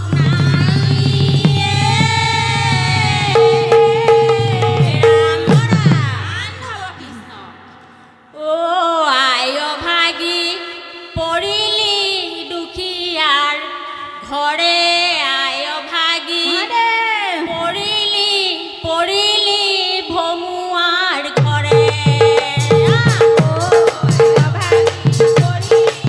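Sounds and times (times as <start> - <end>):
women singing: 0.0 - 26.0
hand drum strokes: 0.2 - 6.2.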